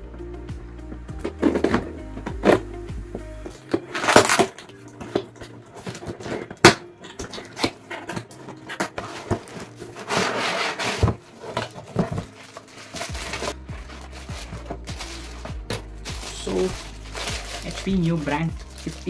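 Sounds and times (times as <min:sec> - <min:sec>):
cardboard scraping and rubbing: 0:07.6 - 0:19.0.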